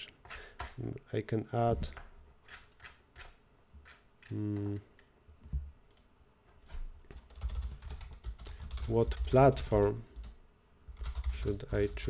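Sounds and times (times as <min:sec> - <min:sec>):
person humming: 0:04.3 - 0:04.9.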